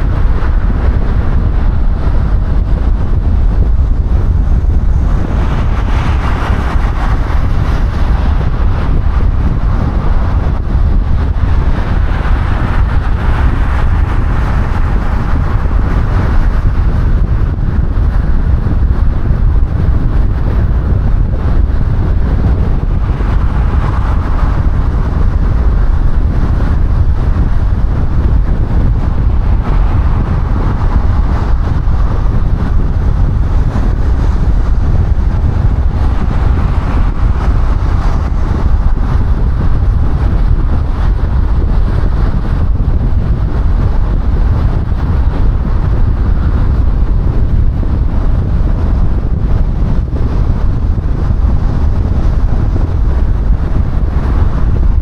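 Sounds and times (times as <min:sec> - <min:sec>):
car tyre and wind rumble: 0:00.0 - 0:55.0.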